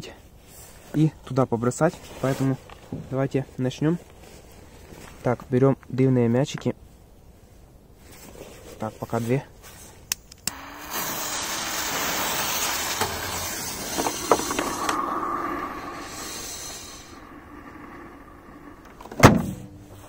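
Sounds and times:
fuses hissing: 10.4s - 20.0s
washing machine lid slamming: 19.2s - 19.7s.

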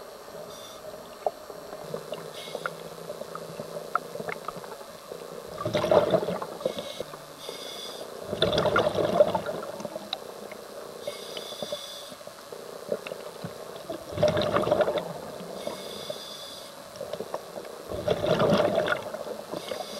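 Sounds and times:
regulator hissing inhalations: 2.3s - 2.8s, 6.6s - 8.2s, 11.0s - 12.2s, 15.5s - 16.8s, 19.5s - 19.9s
bubbling exhalation: 5.5s - 6.4s, 8.3s - 9.8s, 14.0s - 15.2s, 17.9s - 19.2s.

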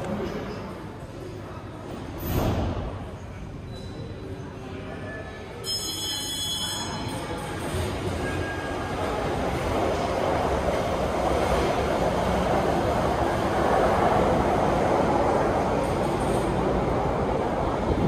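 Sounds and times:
rail vehicle rumbling: 5.6s - 18.0s.

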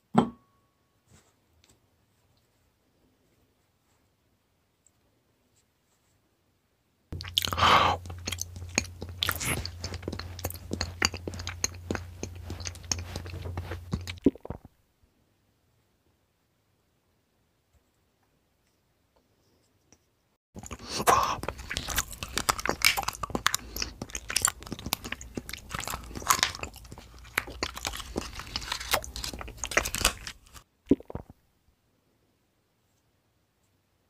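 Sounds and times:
crunchy chewing: 7.1s - 14.7s, 20.6s - 31.2s.

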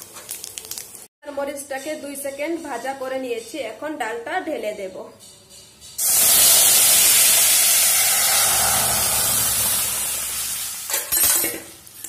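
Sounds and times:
loud sizzle in hot oil: 6.0s - 12.0s.

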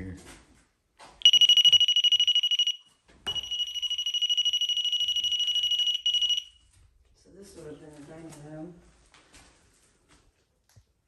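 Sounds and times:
rapid high electronic beeping: 1.2s - 6.5s.

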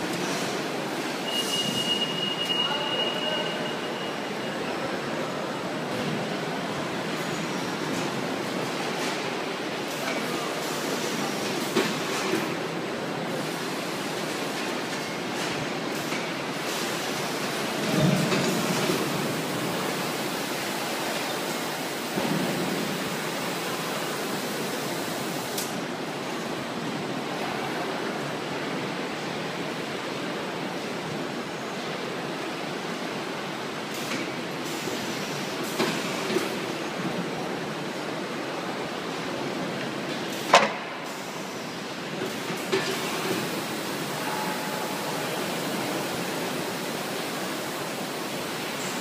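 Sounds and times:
palletizer machinery noise: 0.0s - 4.7s.

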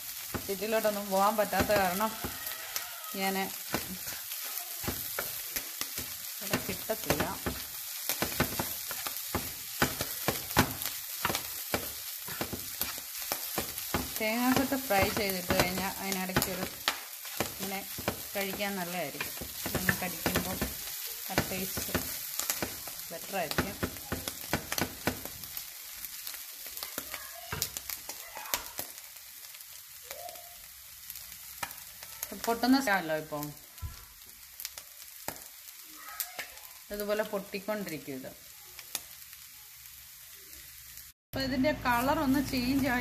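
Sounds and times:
meat sizzling in a frying pan: 0.0s - 43.0s
spatula scraping and tapping pan: 0.2s - 25.6s, 31.6s - 31.8s.

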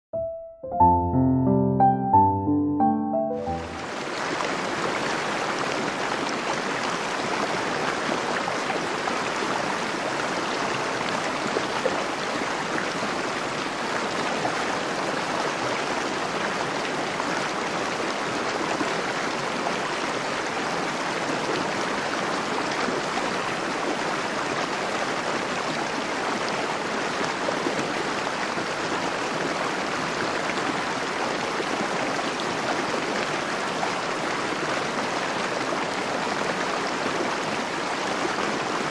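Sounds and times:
fast-flowing river rushing: 3.5s - 38.9s.

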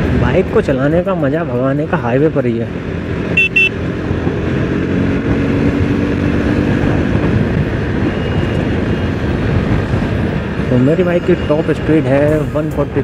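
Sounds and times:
motorcycle engine at speed: 1.8s - 10.7s
wind over microphone: 2.8s - 13.0s.

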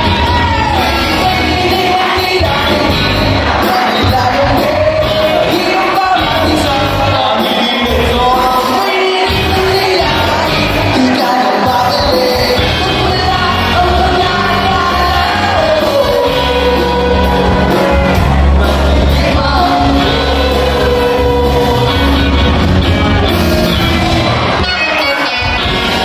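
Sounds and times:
people shouting: 0.0s - 2.2s
horn section: 0.0s - 26.0s
live pop-rock band: 0.0s - 26.0s
person singing: 0.0s - 26.0s.

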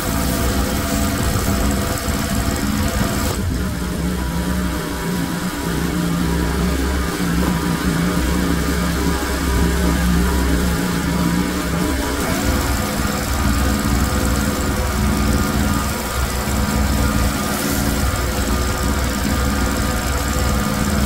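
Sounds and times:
water jet hissing: 0.0s - 3.5s, 9.1s - 21.0s
pressure washer engine humming: 0.0s - 21.0s.

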